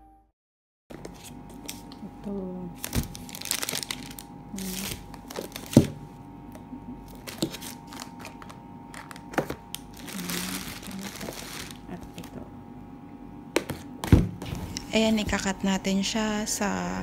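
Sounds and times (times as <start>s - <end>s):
packaging rustling: 2.8s - 6.1s, 7.0s - 12.4s.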